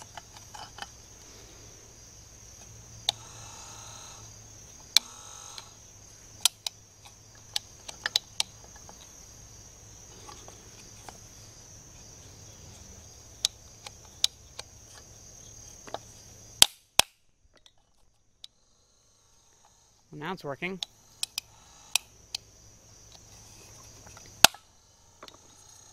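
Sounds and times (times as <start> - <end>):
crickets chirping: 0.0 - 25.9.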